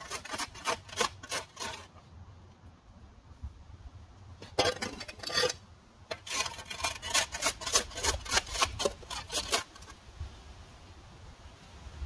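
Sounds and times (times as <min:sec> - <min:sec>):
rapid rasping scrapes: 0:00.0 - 0:02.0, 0:04.4 - 0:10.0.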